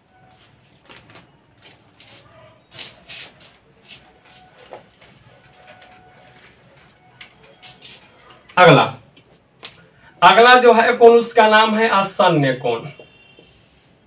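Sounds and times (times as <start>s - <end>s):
duster swishing on whiteboard: 2.0s - 5.8s, 7.4s - 8.3s.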